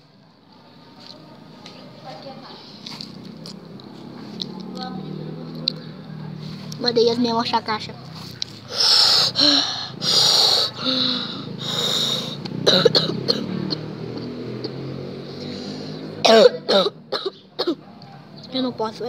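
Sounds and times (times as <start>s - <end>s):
boy's throat and voice sounds: 8.7s - 13.8s
boy coughing: 12.6s - 14.0s, 16.2s - 17.8s.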